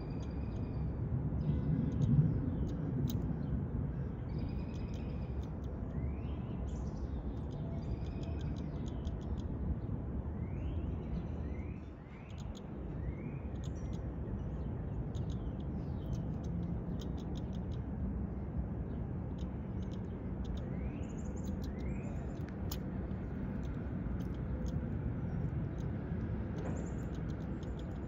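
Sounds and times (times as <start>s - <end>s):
high ticking bird calls: 0.0s - 17.9s, 18.9s - 28.0s
low background rumble: 12.2s - 28.0s
birds chirping: 18.9s - 28.0s.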